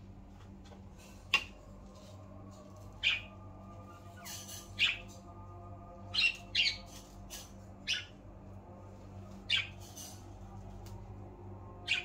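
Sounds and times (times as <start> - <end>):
steady low hum: 0.0 - 12.0
budgerigars chirping and squawking: 3.0 - 3.3, 4.1 - 5.2, 6.1 - 6.9, 7.8 - 8.1, 9.5 - 10.1.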